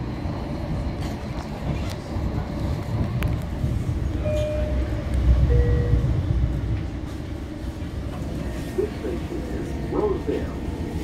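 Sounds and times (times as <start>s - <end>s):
train running rumble: 0.0s - 11.0s
brief tones: 4.2s - 6.0s.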